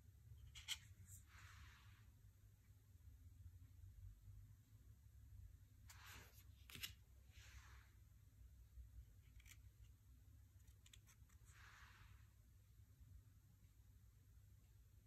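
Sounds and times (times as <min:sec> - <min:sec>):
cards sliding together: 0:05.8 - 0:07.8.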